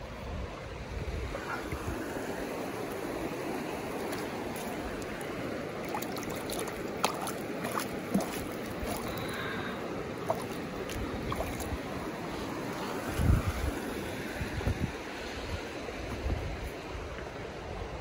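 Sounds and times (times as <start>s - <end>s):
stream water rushing: 0.0s - 18.0s
short clicks and splashes: 5.8s - 9.3s, 10.2s - 11.7s.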